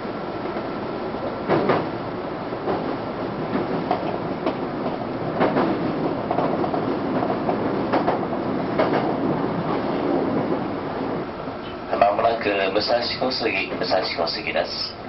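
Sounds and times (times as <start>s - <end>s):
electric train running on rails: 0.0s - 15.0s
wheels clacking over rail joints: 1.4s - 2.0s, 2.6s - 10.7s.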